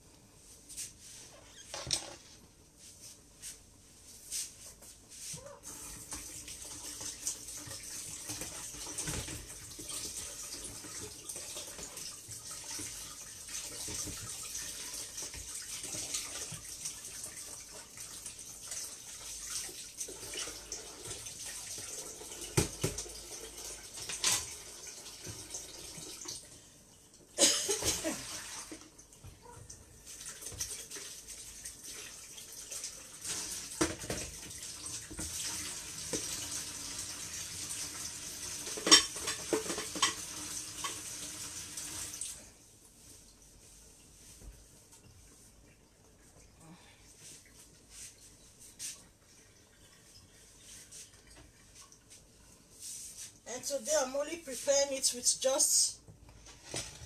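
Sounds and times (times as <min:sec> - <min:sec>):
tap running into sink: 0:22.4 - 0:23.2, 0:33.3 - 0:36.6.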